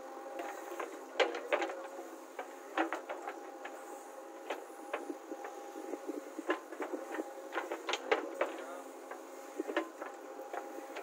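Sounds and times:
diesel engine humming: 0:00.0 - 0:11.0
sharp knocks and clatter: 0:00.4 - 0:03.8, 0:06.4 - 0:11.0.

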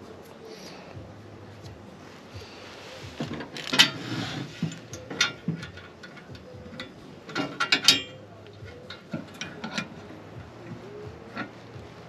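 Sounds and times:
rustling: 0:00.0 - 0:12.0
metal parts clicking and clinking: 0:03.2 - 0:11.6.

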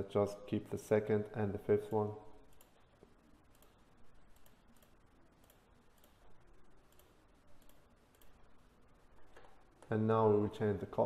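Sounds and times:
computer mouse clicks: 0:02.4 - 0:08.6.

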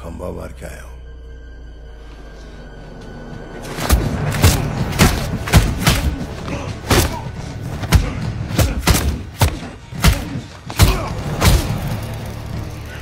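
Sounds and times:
heavy punches: 0:03.8 - 0:12.0
grunts of effort: 0:05.6 - 0:11.8.

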